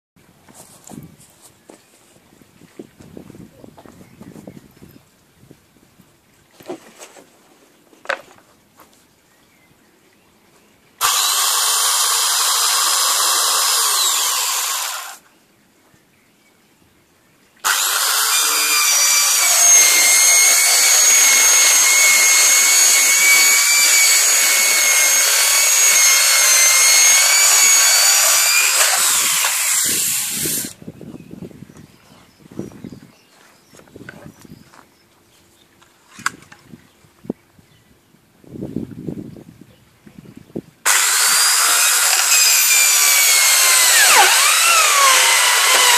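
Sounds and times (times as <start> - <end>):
circular saw cutting plastic sheet: 17.7 - 30.8, 40.9 - 45.9.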